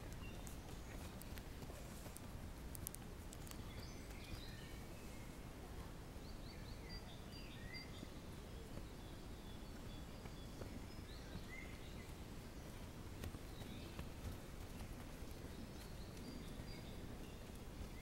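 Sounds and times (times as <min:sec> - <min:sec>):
footfalls on dirt path: 0:13.1 - 0:18.0.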